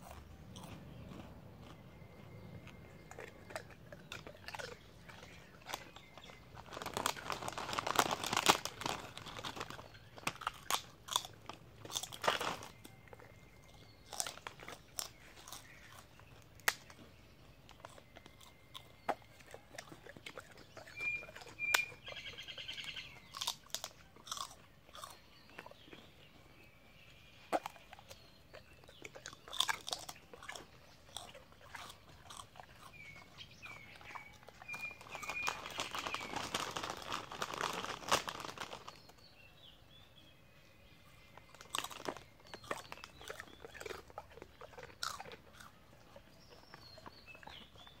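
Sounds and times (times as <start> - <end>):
dog crunching and chewing: 0.0 - 39.3, 41.2 - 48.0.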